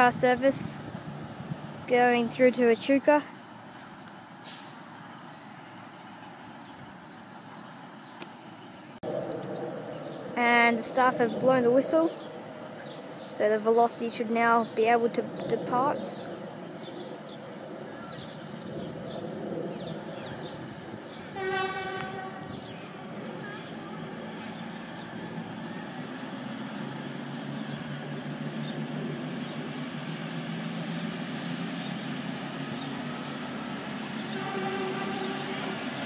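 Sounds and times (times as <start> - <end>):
diesel engines running: 0.0 - 36.0
train horn blast: 21.4 - 22.7, 34.2 - 35.9.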